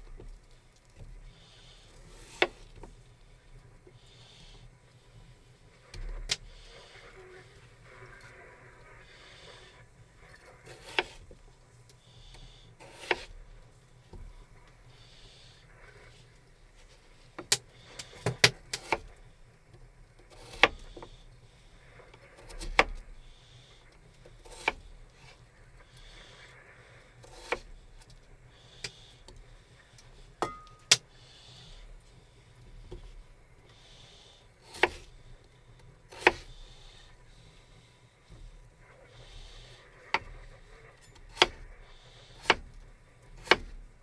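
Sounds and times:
knife cutting on wooden board: 10.7s - 11.2s, 12.8s - 13.3s, 24.5s - 24.8s, 27.3s - 27.7s, 34.7s - 35.1s, 36.1s - 36.6s, 43.4s - 43.7s.

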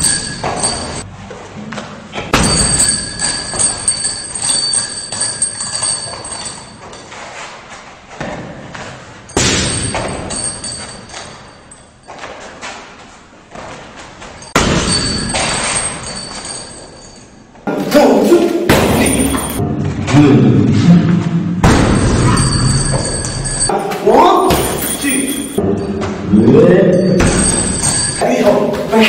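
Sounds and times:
kicks thudding on punching bag: 21.6s - 23.1s, 27.2s - 28.0s
ringing after thuds: 26.9s - 28.2s.

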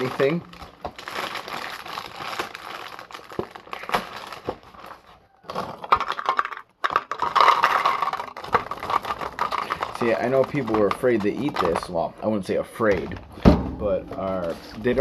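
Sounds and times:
packaging crinkling: 0.0s - 13.4s
cereal pouring into a bowl: 7.1s - 11.8s.

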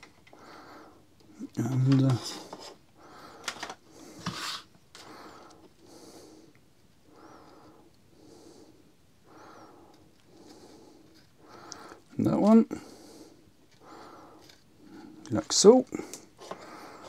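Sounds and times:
person breathing through nose: 2.3s - 12.1s, 12.7s - 15.2s.

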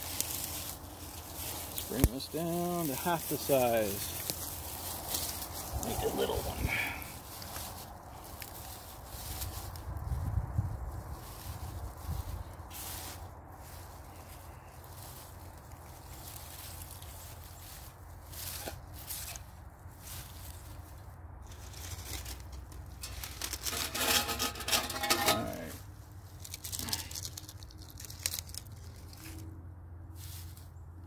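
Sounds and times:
dry grass being torn apart: 0.0s - 9.8s, 11.1s - 13.9s, 21.4s - 29.5s.

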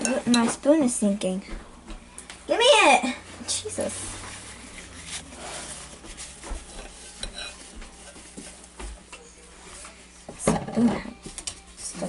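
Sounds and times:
paper tissue rustling: 3.8s - 8.8s.

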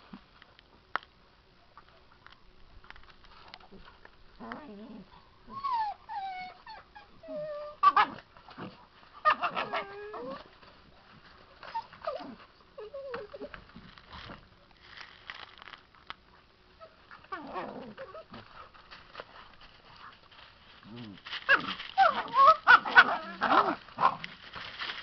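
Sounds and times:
puppy whimpering and yelping: 4.4s - 8.2s, 9.2s - 10.5s, 11.6s - 13.6s, 21.5s - 23.8s.

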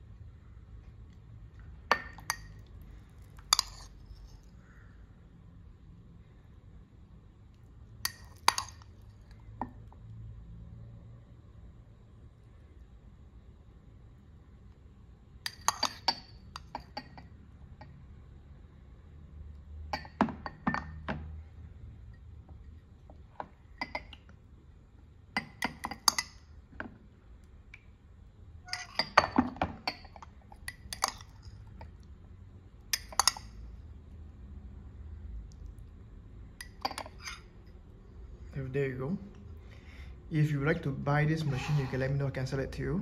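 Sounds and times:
metal spoon clinking cups: 1.9s - 4.4s, 8.0s - 9.0s, 15.4s - 17.9s, 19.9s - 21.1s, 23.8s - 24.2s, 25.4s - 26.4s, 28.7s - 31.9s, 32.9s - 33.6s, 36.6s - 37.6s.

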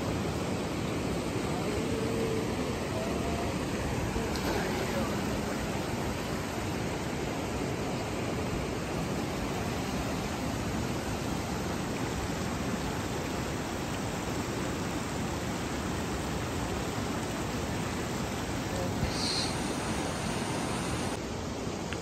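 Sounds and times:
rushing stream water: 0.0s - 22.0s.

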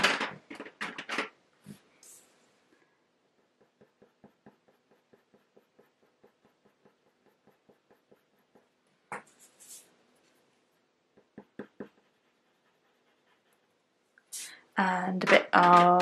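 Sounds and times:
pencil scratching on paper: 3.2s - 13.9s.

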